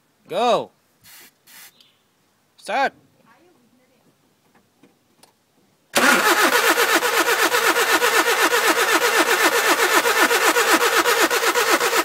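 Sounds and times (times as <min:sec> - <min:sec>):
spray can spraying: 0:01.1 - 0:01.8
car engine cranking: 0:06.0 - 0:12.0.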